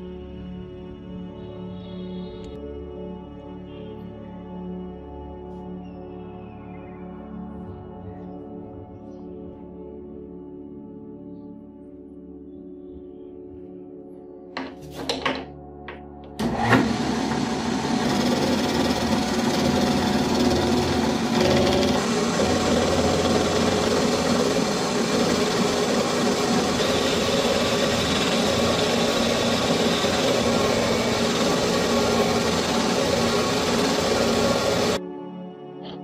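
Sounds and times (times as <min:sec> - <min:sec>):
metal lathe running: 0:16.4 - 0:35.0.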